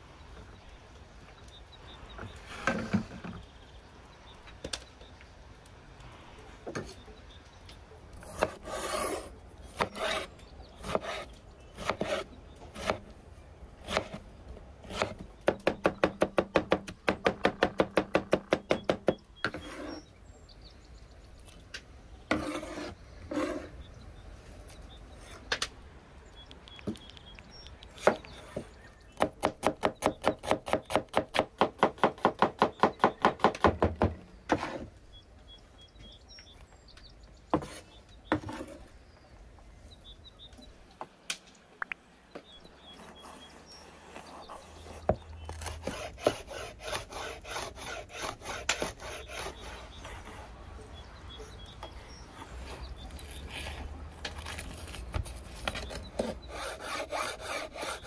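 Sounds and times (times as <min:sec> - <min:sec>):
fast strokes on wood: 0:43.0 - 0:50.5, 0:55.7 - 0:58.0.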